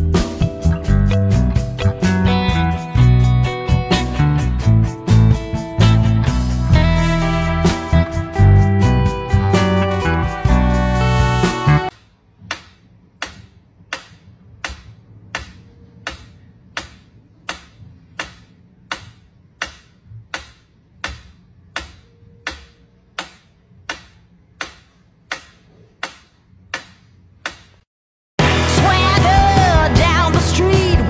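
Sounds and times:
metronome ticking: 0:11.8 - 0:27.8.

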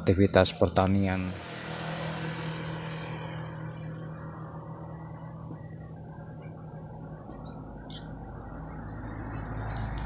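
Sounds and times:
insect drone: 0:01.2 - 0:10.0
bird chirps: 0:04.2 - 0:10.0.

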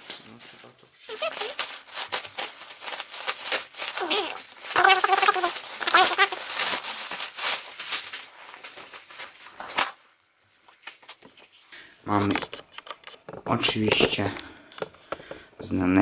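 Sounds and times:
plastic bag crinkling: 0:00.0 - 0:11.6.

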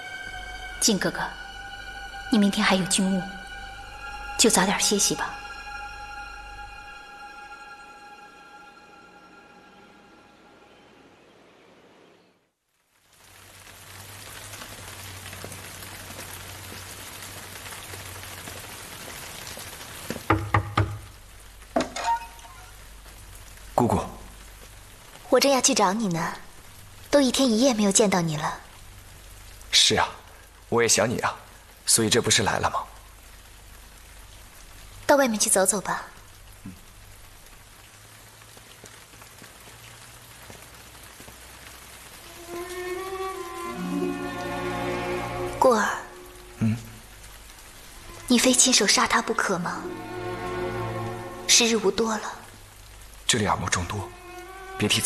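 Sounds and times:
slow string music: 0:00.0 - 0:11.7, 0:42.0 - 0:52.3, 0:52.9 - 0:55.0
rain hissing: 0:00.0 - 0:55.0
sharp loud knocks: 0:20.2 - 0:21.1.

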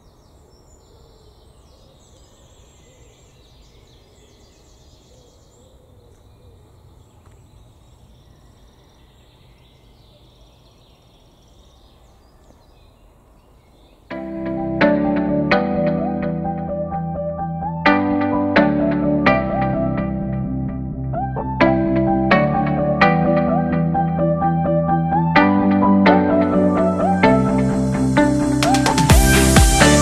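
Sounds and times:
songbirds chirping and trilling: 0:00.0 - 0:15.2.

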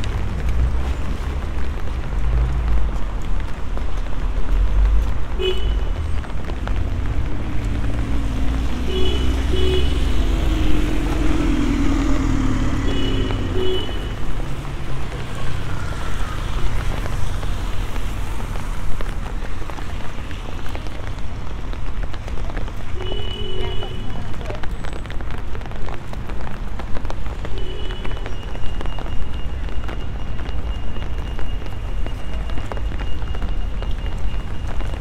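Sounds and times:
traffic rumble: 0:00.0 - 0:35.0
engine passing: 0:06.5 - 0:18.4.

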